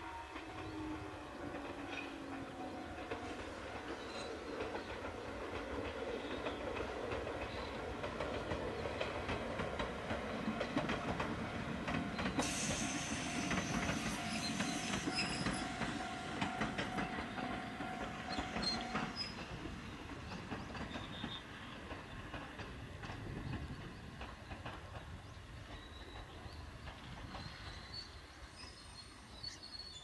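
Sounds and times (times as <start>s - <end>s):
train rumble: 0.0s - 29.9s
train wheels clicking over rail joints: 1.5s - 28.8s
high-pitched wheel squeal: 13.6s - 15.8s.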